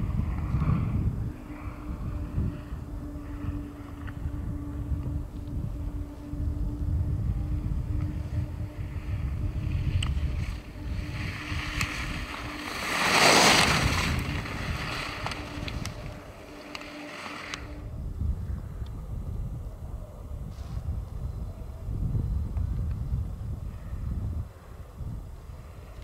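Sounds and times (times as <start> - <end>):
wind on microphone: 0.0 - 26.0
skis carving on snow: 9.7 - 17.8.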